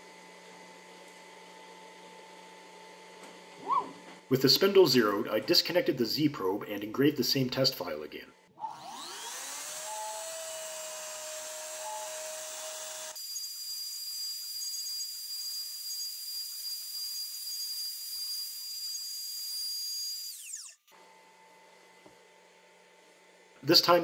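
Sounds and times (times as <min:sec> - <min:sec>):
router spindle whining: 0:08.6 - 0:22.6
bit engraving wood: 0:08.8 - 0:20.8.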